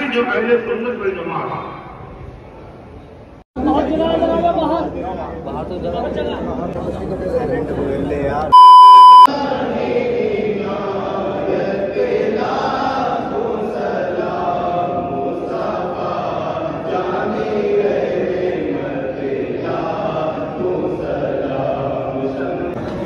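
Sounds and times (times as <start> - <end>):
men chanting prayer: 9.3 - 22.8.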